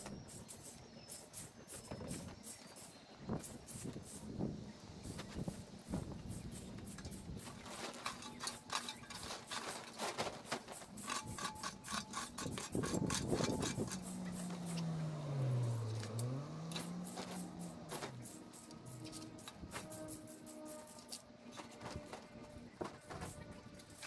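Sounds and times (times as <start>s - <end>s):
rake scraping over lawn: 5.0s - 24.0s.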